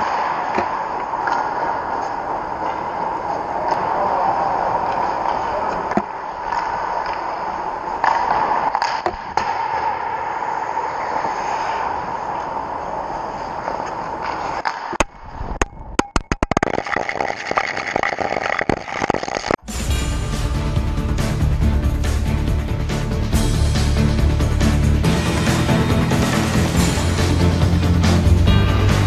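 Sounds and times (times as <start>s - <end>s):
skates scraping ice: 0.0s - 15.5s.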